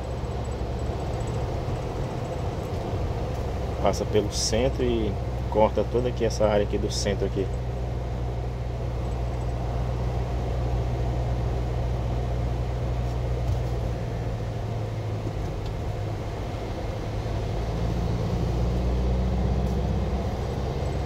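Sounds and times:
truck engine and road noise: 0:00.0 - 0:21.0.

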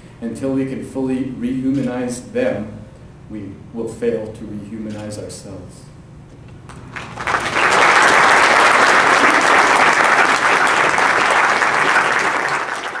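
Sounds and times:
audience applauding: 0:06.7 - 0:13.0.

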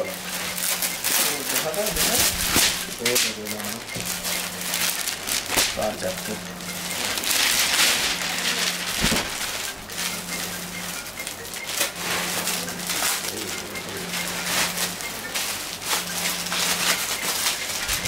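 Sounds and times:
plastic packaging crinkling: 0:00.0 - 0:10.6, 0:11.2 - 0:18.0
fabric rustling: 0:07.0 - 0:09.8.

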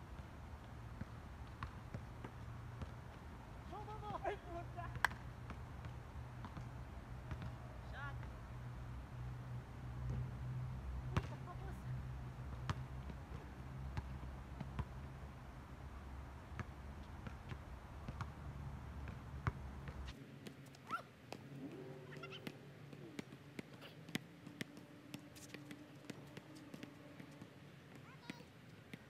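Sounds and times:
basketball bouncing on court: 0:01.0 - 0:08.4, 0:11.1 - 0:11.7, 0:12.5 - 0:15.2, 0:16.5 - 0:18.4, 0:19.0 - 0:21.5, 0:22.1 - 0:29.0.

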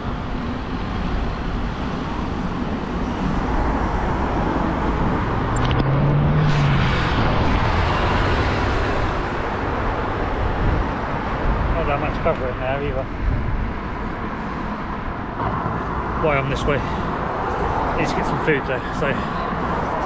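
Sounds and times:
rush of passing cars: 0:00.0 - 0:20.0
vehicle engine passing close: 0:04.4 - 0:10.2.

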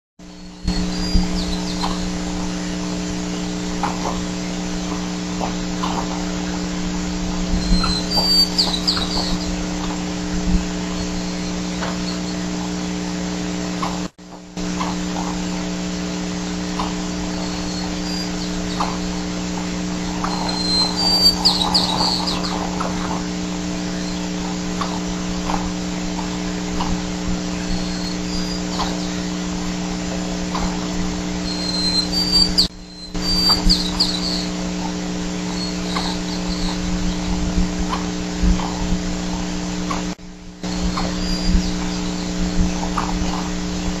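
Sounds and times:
electrical hum: 0:00.2 - 0:44.0
high bird chirps: 0:00.3 - 0:04.2, 0:07.3 - 0:10.1, 0:10.7 - 0:12.5, 0:16.4 - 0:25.6, 0:26.2 - 0:29.8, 0:30.5 - 0:37.4, 0:40.6 - 0:43.5.

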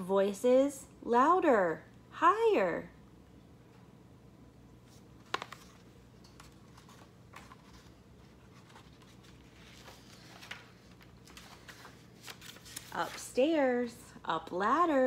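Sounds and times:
page flipping: 0:04.8 - 0:13.3
paper rustling: 0:04.8 - 0:13.4.

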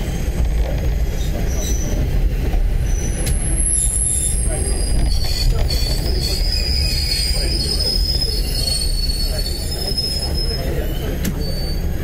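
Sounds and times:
rumble of wheels: 0:00.0 - 0:12.0
train wheels squealing: 0:00.0 - 0:12.0.

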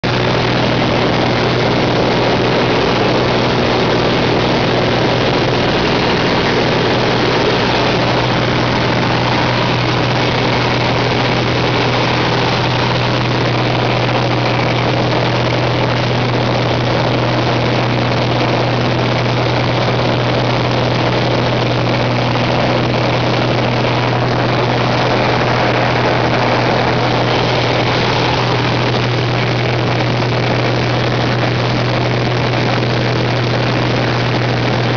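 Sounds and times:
propeller plane engine drone: 0:00.0 - 0:34.9.

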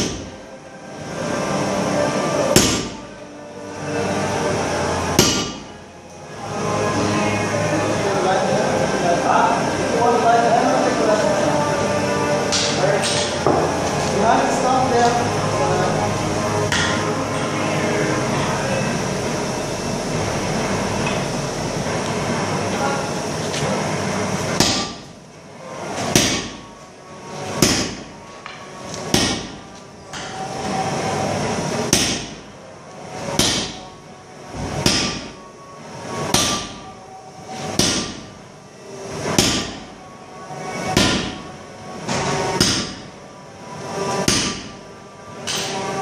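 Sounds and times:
steady rushing noise: 0:00.0 - 0:46.0
sledgehammer striking steel on anvil: 0:02.5 - 0:03.0, 0:05.2 - 0:05.6, 0:24.6 - 0:25.0, 0:26.1 - 0:26.6, 0:27.6 - 0:28.0, 0:29.1 - 0:29.6, 0:31.9 - 0:32.4, 0:33.4 - 0:33.8, 0:34.8 - 0:35.3, 0:37.8 - 0:38.2, 0:39.4 - 0:39.8, 0:42.6 - 0:43.0, 0:44.2 - 0:44.7.

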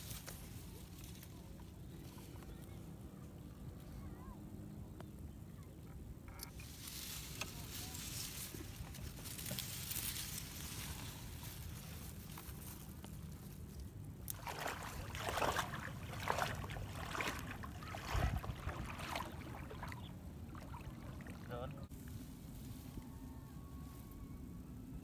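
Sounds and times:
splashing through water: 0:14.3 - 0:21.9.

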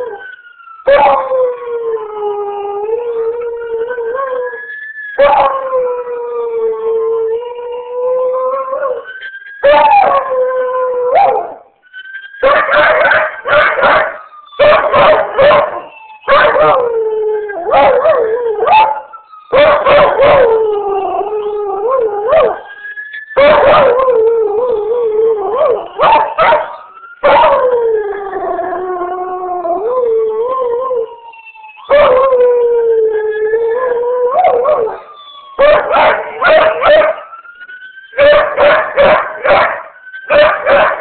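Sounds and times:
dog howling and baying: 0:09.6 - 0:11.6, 0:12.4 - 0:22.7, 0:23.4 - 0:31.1, 0:31.9 - 0:37.2, 0:38.2 - 0:41.0.

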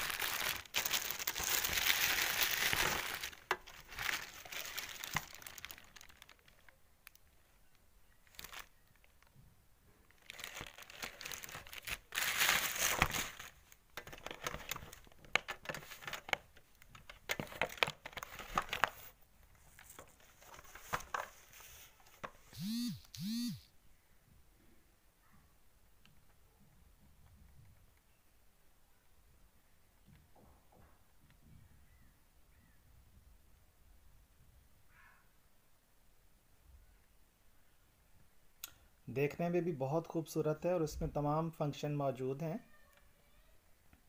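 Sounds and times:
plastic wrapping crinkling: 0:00.0 - 0:07.4, 0:08.2 - 0:09.4, 0:10.0 - 0:23.3.

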